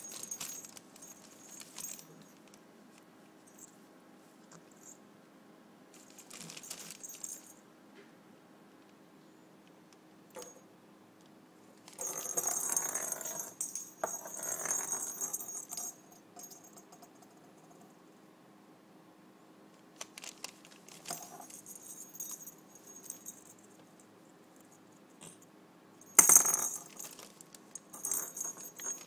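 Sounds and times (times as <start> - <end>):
cat toy bell jingling: 21.1 - 23.6, 28.0 - 29.0.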